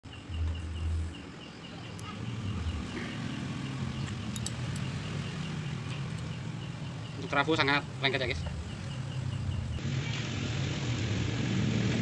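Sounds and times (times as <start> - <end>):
high ticking: 0.0 - 9.8
metal laminations clicking: 4.0 - 5.0.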